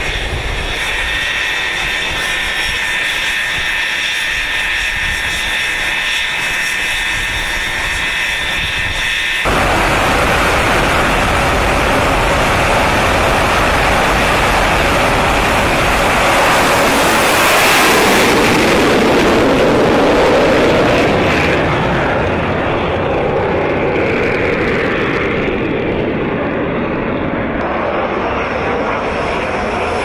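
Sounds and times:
jet engine at full power: 0.0s - 30.0s.

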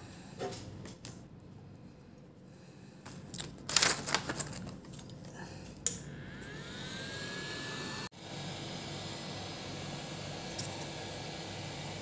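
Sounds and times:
small motor high whine: 6.0s - 12.0s.

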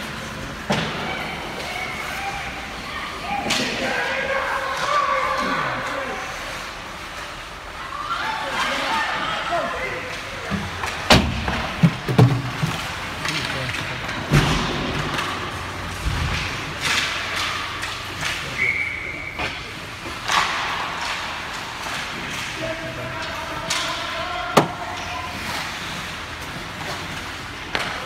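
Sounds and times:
sticks and puck clacking: 0.0s - 7.5s, 10.0s - 28.0s
spectators' voices echoing: 0.0s - 28.0s
skates scraping on ice: 10.0s - 28.0s.

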